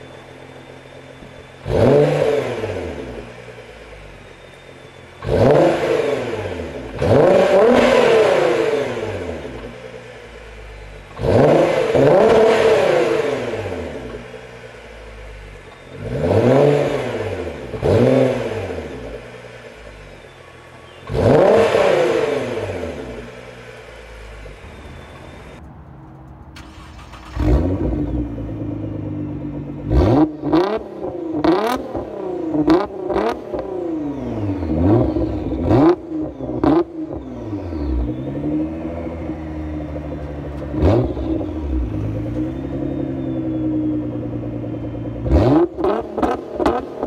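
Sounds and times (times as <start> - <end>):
car engine revving: 0.0 - 47.0
car engine starting: 0.0 - 47.0.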